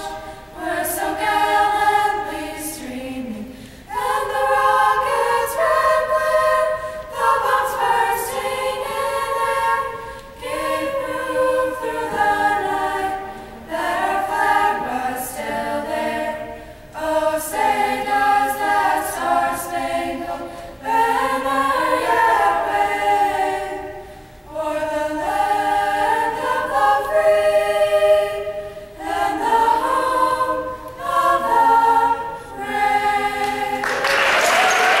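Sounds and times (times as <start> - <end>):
group singing a cappella: 0.0 - 35.0
applause: 33.8 - 35.0.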